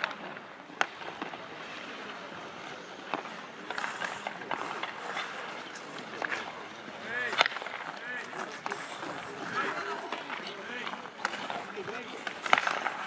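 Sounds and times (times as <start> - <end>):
sticks striking puck: 0.0 - 2.1, 2.9 - 13.0
skate blades scraping ice: 0.0 - 13.0.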